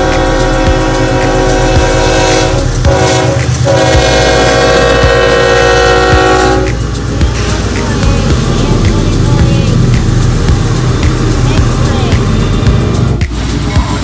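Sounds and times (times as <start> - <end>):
locomotive horn blasts: 0.0 - 6.8
train rumbling: 0.0 - 14.0.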